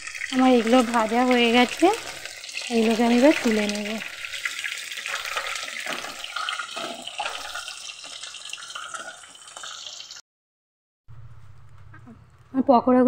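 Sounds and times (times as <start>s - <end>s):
oil sizzling and popping: 0.0s - 10.2s.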